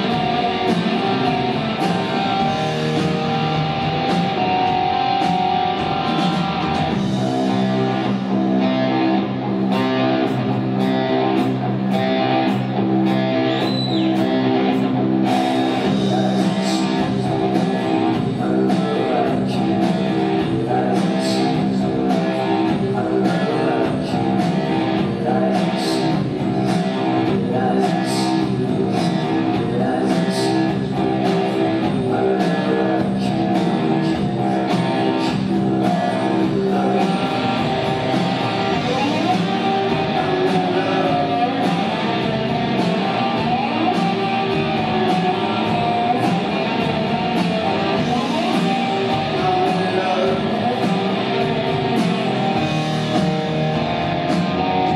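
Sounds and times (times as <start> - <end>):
electric guitar chords: 0.0 - 54.9
steady drum beat: 0.0 - 54.9.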